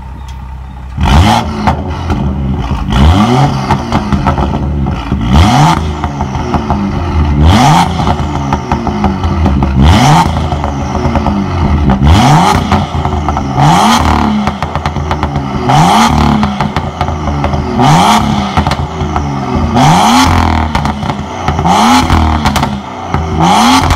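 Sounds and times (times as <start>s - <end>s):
car engine revving: 1.0s - 23.9s.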